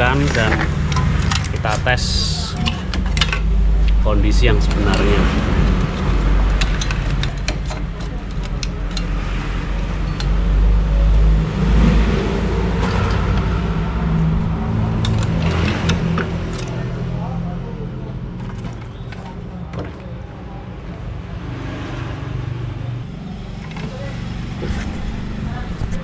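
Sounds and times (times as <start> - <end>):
plastic connectors clicking and rattling: 0.0 - 9.2
steady low rumble: 0.0 - 18.4.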